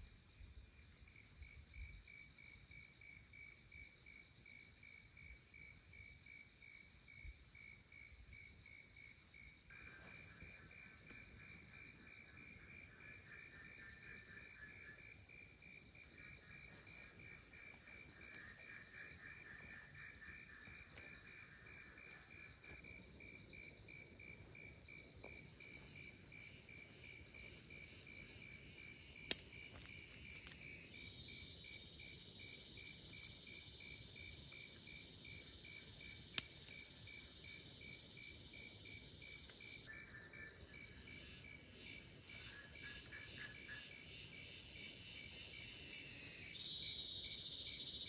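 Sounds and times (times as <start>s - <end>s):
insects chirping: 0.0s - 48.0s
insect fast pulsing trill: 6.8s - 48.0s
sharp clicks: 29.1s - 30.6s, 36.4s - 36.8s.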